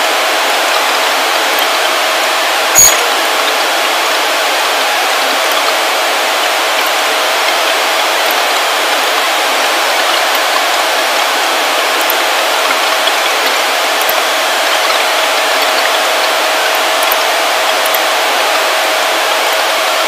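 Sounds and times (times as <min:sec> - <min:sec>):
microphone hiss: 0:00.0 - 0:20.0
faint clicks: 0:09.9 - 0:18.6.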